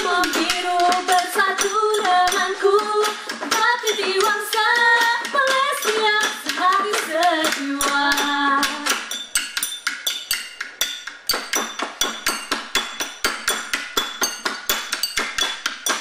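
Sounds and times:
women singing: 0.0 - 9.0
clicking percussion beat: 0.0 - 16.0.

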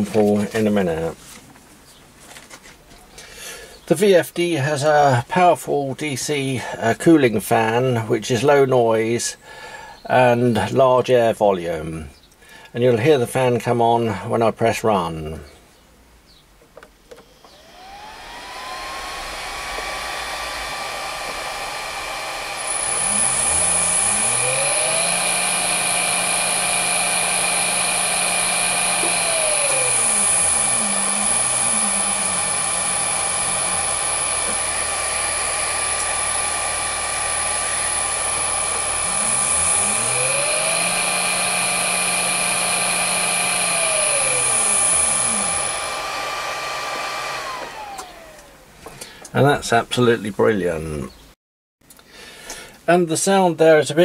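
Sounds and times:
electric motor hum: 17.2 - 48.7
cooling fan whirring: 17.2 - 49.3
high-pitched whine: 17.3 - 46.0.

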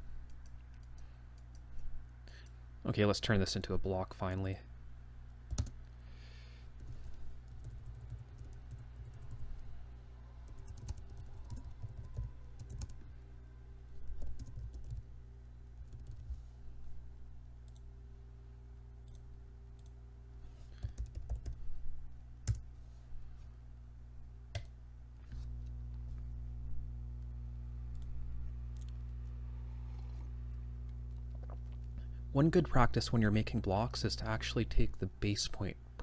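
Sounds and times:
steady low hum: 0.0 - 36.0
keyboard keys tapping: 10.5 - 13.0, 20.8 - 21.6.

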